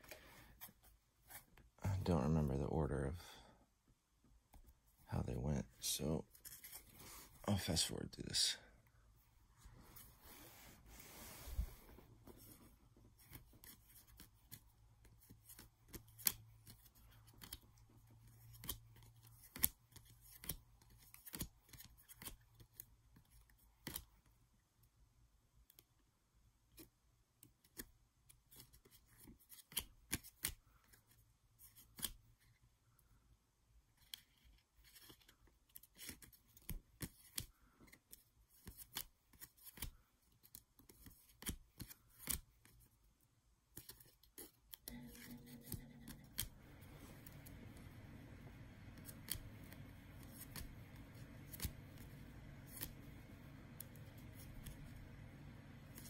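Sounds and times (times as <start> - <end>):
trading cards clicking and snapping: 15.5 - 17.7, 18.4 - 22.8, 43.8 - 56.0.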